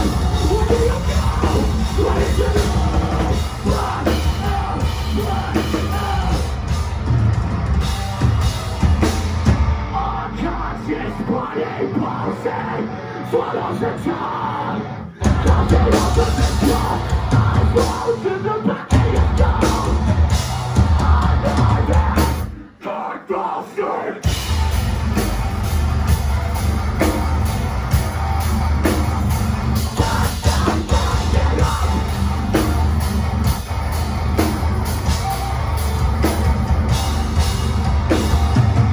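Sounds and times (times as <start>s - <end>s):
bass guitar: 0.0s - 22.6s, 24.2s - 38.9s
distorted guitars: 0.0s - 38.9s
drums: 0.0s - 38.9s
screamed vocals: 10.0s - 20.0s, 21.0s - 24.4s.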